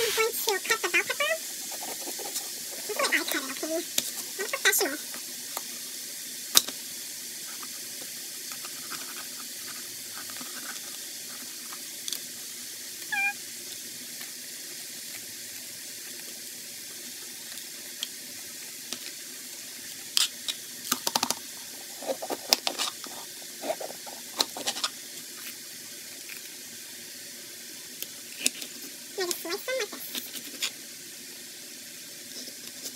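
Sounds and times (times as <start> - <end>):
steady hiss: 0.0 - 32.9
high-pitched squeak: 13.1 - 13.4.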